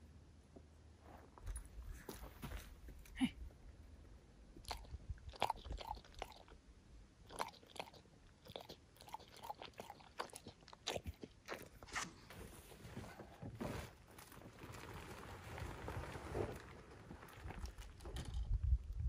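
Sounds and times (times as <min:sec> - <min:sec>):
dog lapping water: 0:04.7 - 0:06.5, 0:07.3 - 0:11.6.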